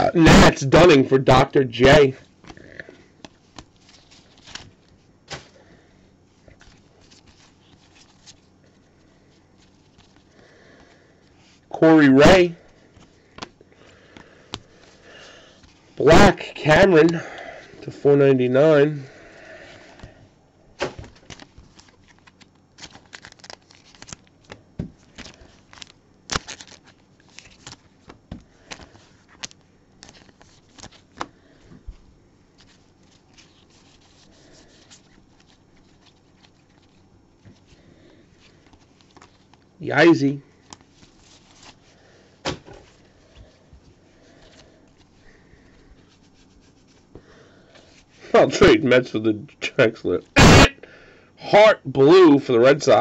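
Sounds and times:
cards rubbing and clicking: 6.4 - 8.5, 20.8 - 31.8, 32.6 - 37.8
foil wrapper crinkling: 20.9 - 31.6, 32.5 - 39.7.

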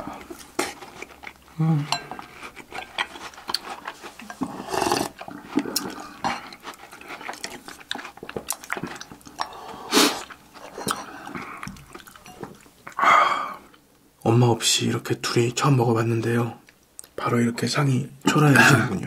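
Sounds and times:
slurping cereal and milk: 2.2 - 11.6.

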